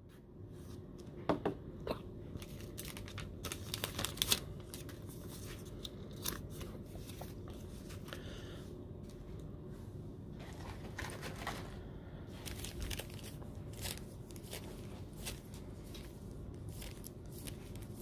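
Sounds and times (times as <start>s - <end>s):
clicks and rustles of plastic: 10.4s - 11.8s.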